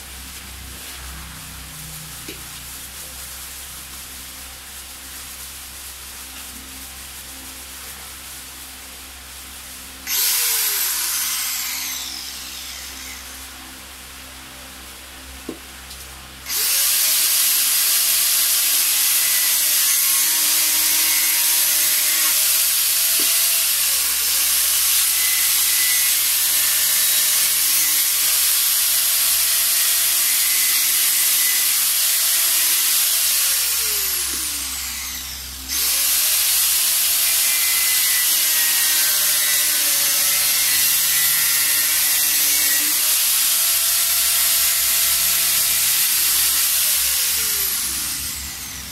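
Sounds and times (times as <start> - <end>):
electric grinder cutting: 10.0 - 13.8, 16.4 - 48.9.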